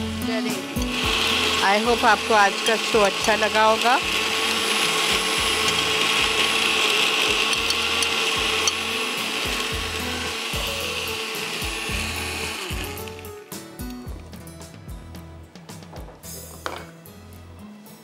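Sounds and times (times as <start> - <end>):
blender running: 0.0 - 13.5.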